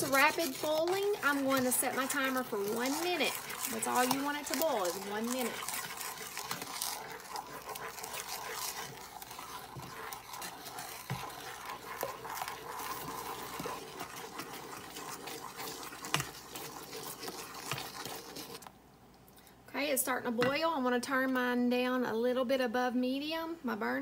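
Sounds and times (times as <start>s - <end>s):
wooden spoon stirring in saucepan: 0.0s - 18.8s.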